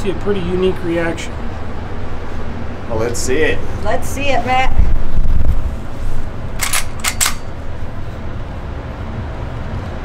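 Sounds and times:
steady low rumble: 0.0s - 10.0s
rifle lever metallic clicks: 6.6s - 7.5s.

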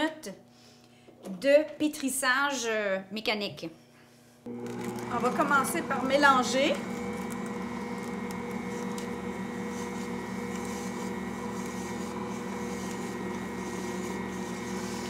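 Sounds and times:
stand mixer motor humming: 4.5s - 15.0s.

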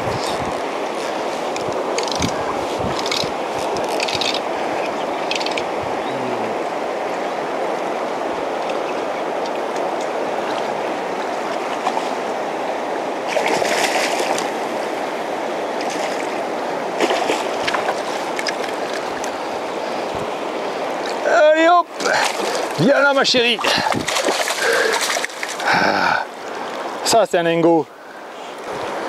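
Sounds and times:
river current rushing: 0.0s - 29.0s
fish splashing at surface: 23.8s - 25.6s.

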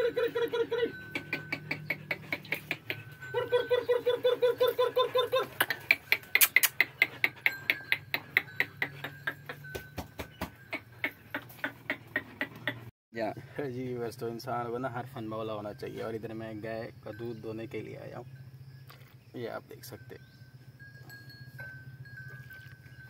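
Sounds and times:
dog panting rapidly: 5.0s - 8.9s.

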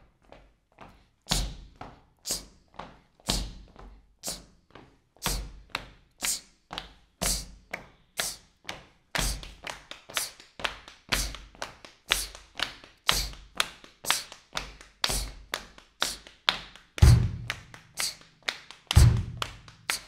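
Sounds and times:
rhythmic taps or claps: 0.2s - 20.0s
low thumps: 19.0s - 19.6s.

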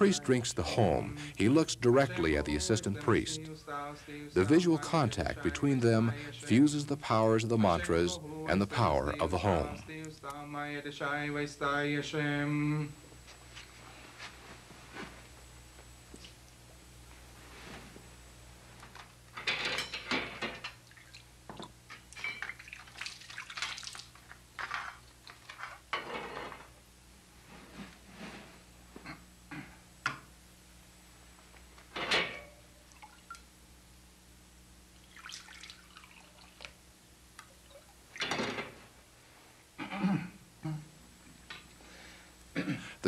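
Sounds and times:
water pouring and dripping: 35.0s - 36.7s.

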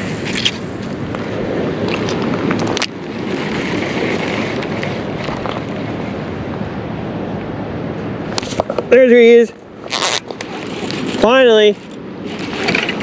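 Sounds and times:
microphone handling rustle: 8.3s - 9.0s, 9.8s - 13.0s.

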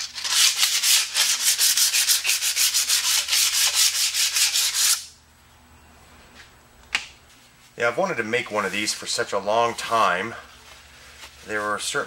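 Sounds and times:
sandpaper rasping on steel rod: 0.0s - 5.1s.

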